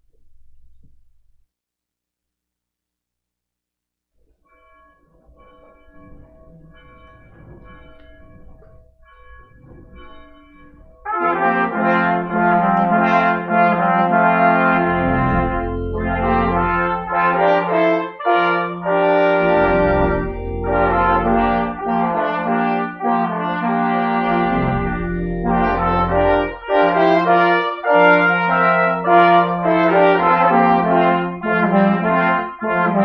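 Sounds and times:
brass ensemble playing chords: 11.1s - 33.0s
faint held notes: 18.8s - 22.8s.

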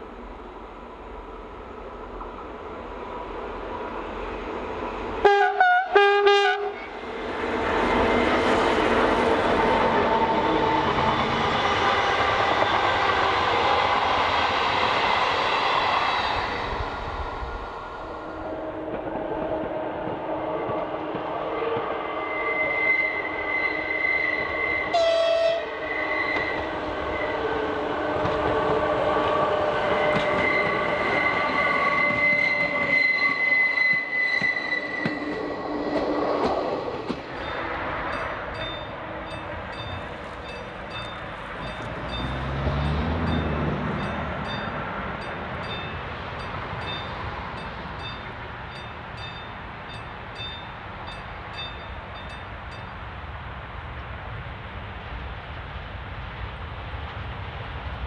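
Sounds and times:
diesel locomotives passing: 0.0s - 58.0s
high-pitched wheel squealing: 22.0s - 27.6s, 29.8s - 44.8s.

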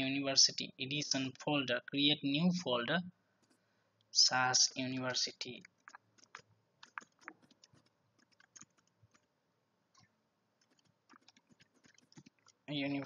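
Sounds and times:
mouse clicking: 3.4s - 4.1s, 5.5s - 13.0s
computer keys typing: 5.2s - 13.0s.

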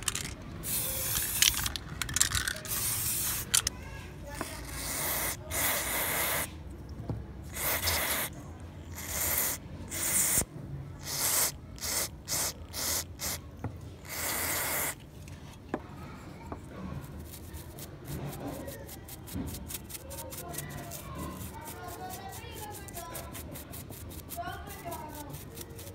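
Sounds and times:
aerosol spray can hissing: 0.1s - 3.7s, 4.7s - 6.5s, 7.5s - 8.3s, 8.9s - 10.4s, 11.0s - 13.4s, 14.0s - 15.0s
brush scrubbing circuit board: 17.2s - 25.9s.

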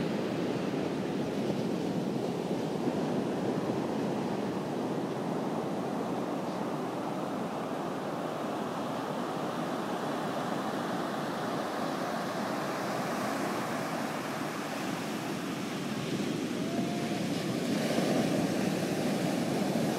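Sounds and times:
ocean surf washing on beach: 0.0s - 19.9s.

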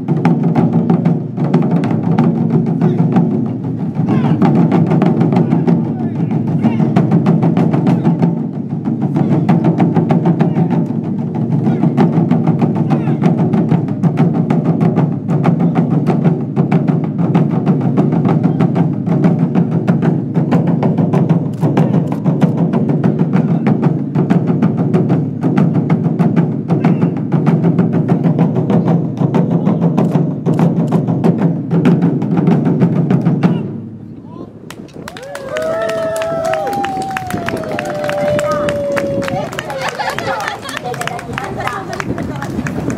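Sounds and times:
barrel drums beaten with sticks: 0.0s - 34.1s.

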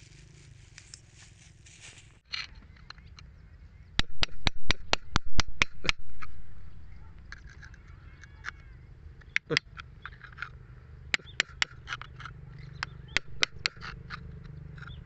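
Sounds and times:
low steady rumble: 0.0s - 15.0s
screwdriver scraping rock: 11.2s - 15.0s.

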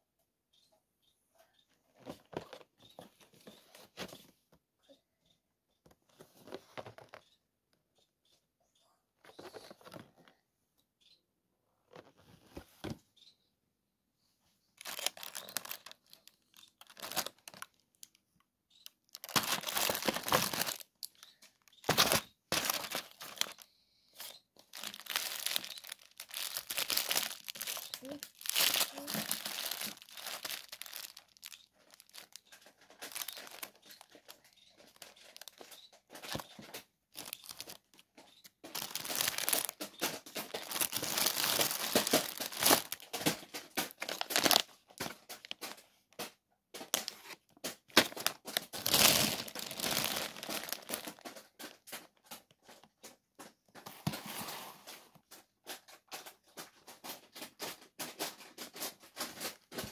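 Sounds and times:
plastic packaging crinkling: 14.8s - 45.9s, 46.8s - 52.9s.

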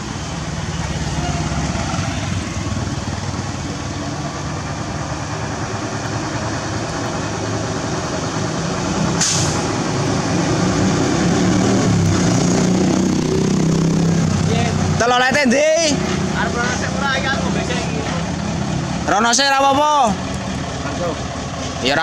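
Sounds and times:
heavy diesel engine running: 0.0s - 22.0s
air hiss: 9.2s - 9.8s.

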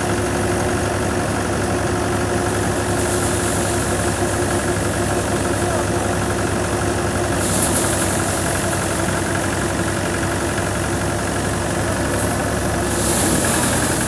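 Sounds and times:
tractor engine drone: 0.0s - 14.0s.

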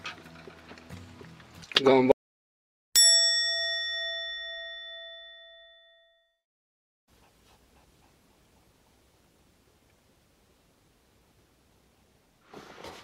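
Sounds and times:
bell chime: 3.0s - 6.3s.

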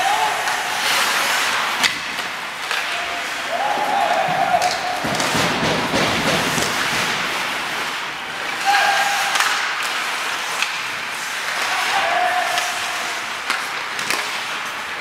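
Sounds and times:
hockey sticks and puck clacking: 0.0s - 15.0s
skates scraping on ice: 0.0s - 15.0s
person shouting: 8.6s - 9.2s.

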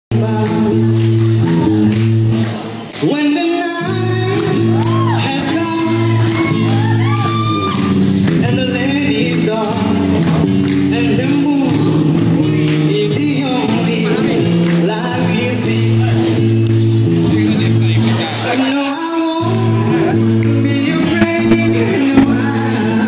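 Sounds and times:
acoustic guitar: 0.1s - 23.0s
person singing: 3.0s - 10.0s, 18.8s - 23.0s.

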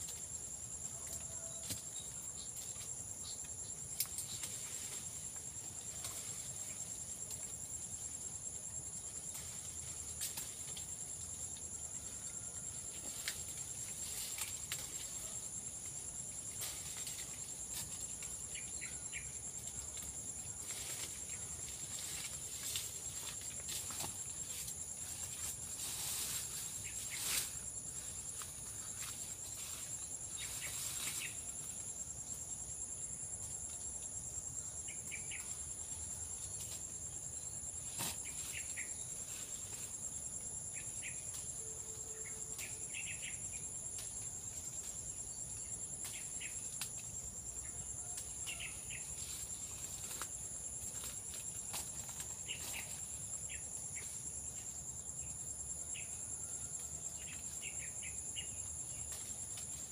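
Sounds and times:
insects trilling: 0.0s - 59.9s
sharp snaps and rustles: 1.0s - 5.1s, 9.3s - 11.0s, 13.0s - 15.3s, 19.6s - 27.6s, 46.0s - 47.1s, 49.2s - 53.1s.

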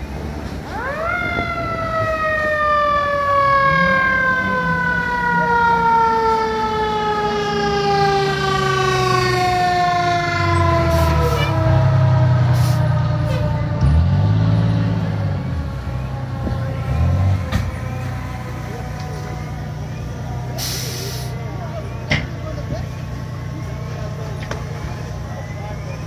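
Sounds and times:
fire truck siren whooping: 0.0s - 26.0s
truck engine running: 6.8s - 26.0s.

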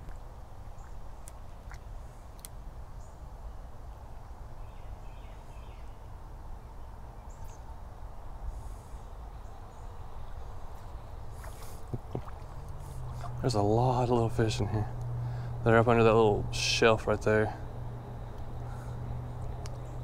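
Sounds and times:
light clicks: 19.4s - 19.9s.

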